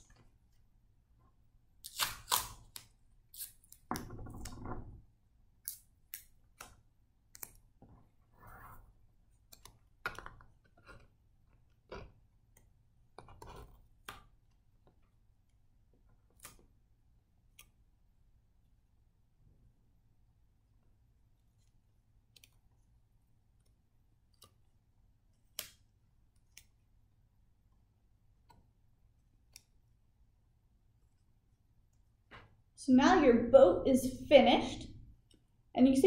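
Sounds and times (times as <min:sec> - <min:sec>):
masking tape ripping off roll: 0:01.8 - 0:03.6.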